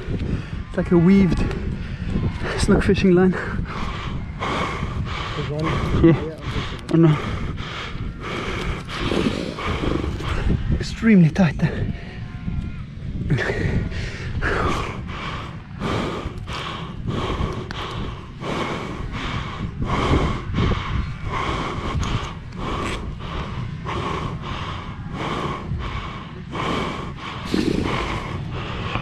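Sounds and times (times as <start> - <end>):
low wind rumble: 0.0 - 29.0
seal huffing breaths: 3.6 - 10.8, 13.8 - 29.0.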